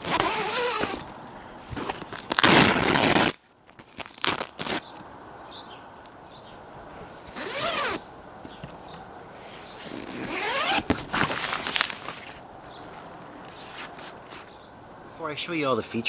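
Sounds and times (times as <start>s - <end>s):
tent zipper being pulled: 0.0s - 1.1s, 1.7s - 3.4s, 7.3s - 8.0s, 9.6s - 12.4s.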